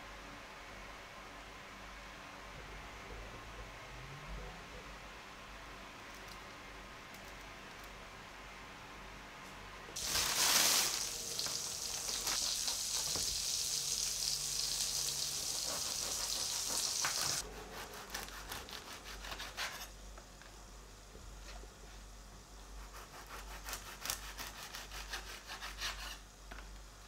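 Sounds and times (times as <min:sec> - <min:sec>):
steady sizzling hiss: 0:05.5 - 0:27.0
bread knife sawing crusty bread: 0:15.5 - 0:19.9, 0:22.8 - 0:26.2.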